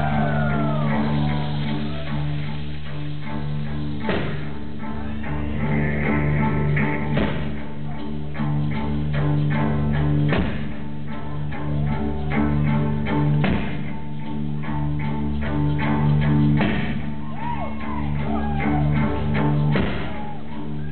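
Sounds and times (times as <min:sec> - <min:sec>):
low bass notes: 0:00.0 - 0:20.9.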